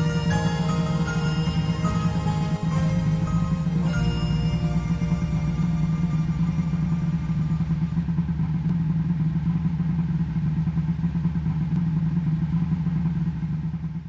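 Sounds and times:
background music: 0:00.0 - 0:08.0
boat engine droning: 0:00.0 - 0:08.7.

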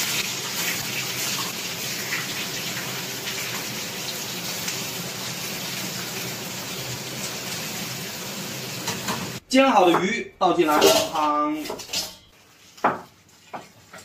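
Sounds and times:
fish frying in oil: 0:00.0 - 0:09.4.

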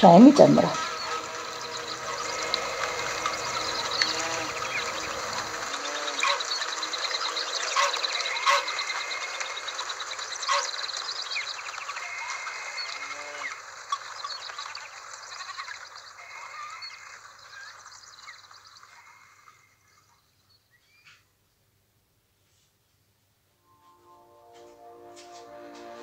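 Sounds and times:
busy breakfast room ambience: 0:00.0 - 0:16.4, 0:23.6 - 0:26.0.

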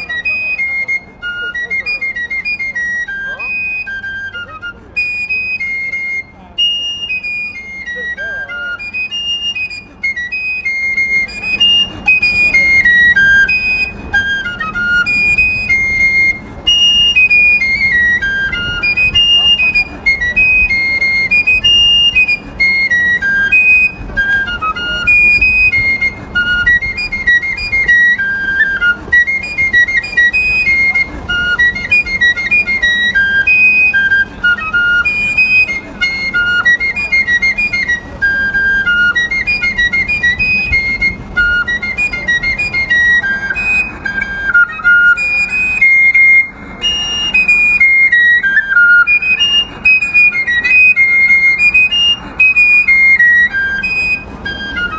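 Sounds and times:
fife melody: 0:00.0 - 0:54.9.

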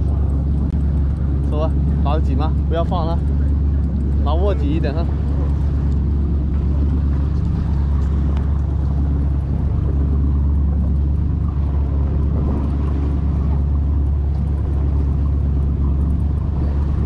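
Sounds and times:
boat engine rumbling: 0:00.0 - 0:17.0
wind and water hiss: 0:00.0 - 0:17.0.

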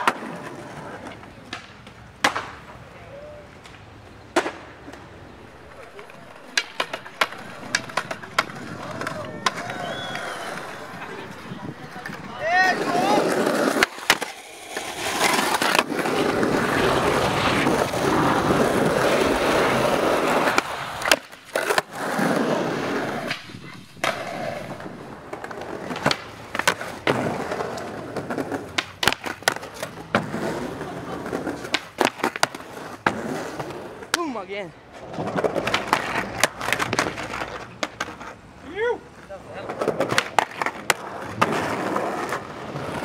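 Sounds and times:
skateboard clacking on concrete: 0:00.0 - 0:02.8, 0:03.5 - 0:38.4, 0:39.1 - 0:43.0
skateboard wheels rolling on concrete: 0:00.0 - 0:43.0.

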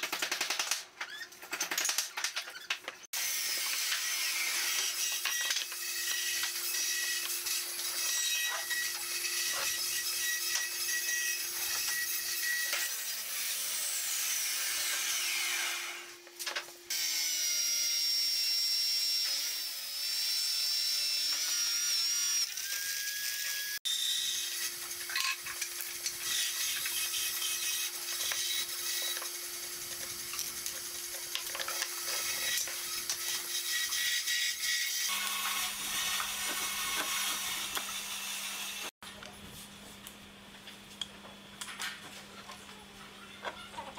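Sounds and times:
wood scraping and cutting: 0:21.2 - 0:38.9.

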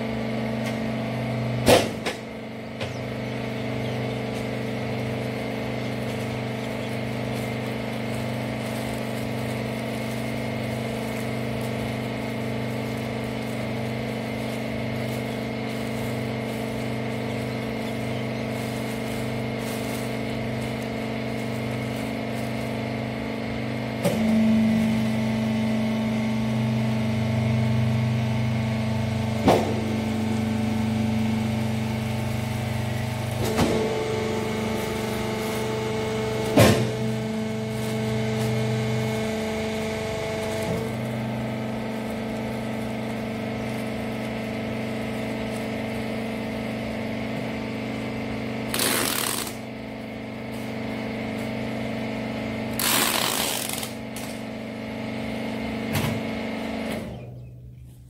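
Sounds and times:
baler motor and pump humming: 0:00.0 - 0:58.0
packing tape pulled from dispenser: 0:48.6 - 0:49.7, 0:52.7 - 0:54.4.

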